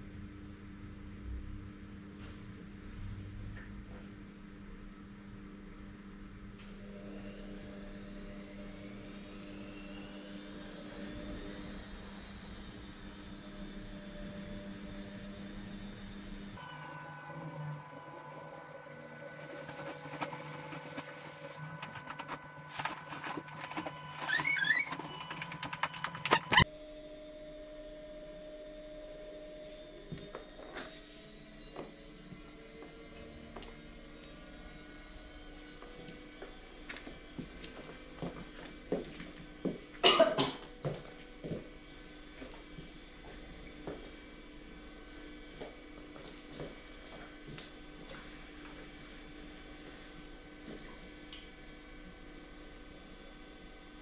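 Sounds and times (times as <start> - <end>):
bedding rustling and flapping: 19.4 - 26.6
brief squeak: 23.8 - 26.6
person coughing: 40.0 - 40.7.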